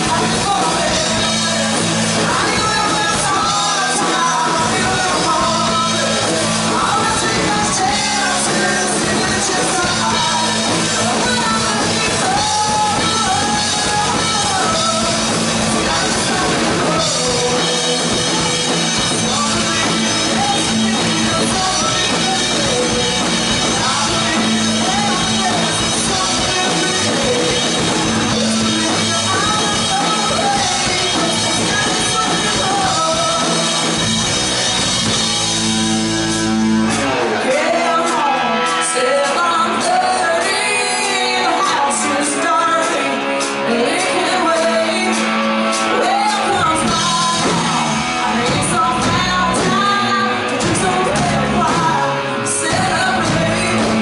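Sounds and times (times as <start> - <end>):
woman singing: 0.0 - 34.3, 37.3 - 54.0
live country-rock band: 0.0 - 54.0.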